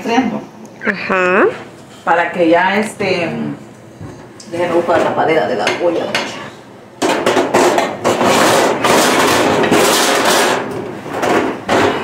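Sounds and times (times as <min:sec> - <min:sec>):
pots and pans clattering: 0:04.6 - 0:12.0.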